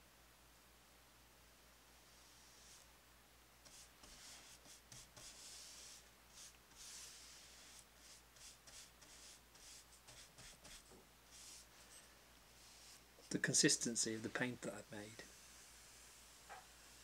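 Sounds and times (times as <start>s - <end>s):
paintbrush swishing on wood: 2.1s - 2.9s, 3.6s - 13.4s.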